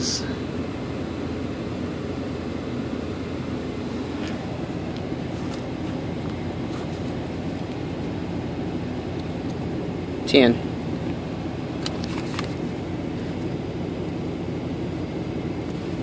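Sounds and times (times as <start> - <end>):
vehicle cabin rumble: 0.0 - 16.0
paper crinkling: 11.8 - 12.7.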